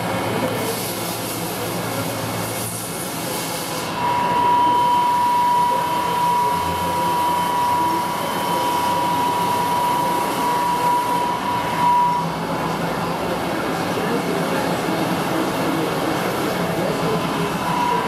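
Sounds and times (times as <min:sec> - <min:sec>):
shop machinery drone: 0:00.0 - 0:18.0
high whine: 0:03.7 - 0:18.0.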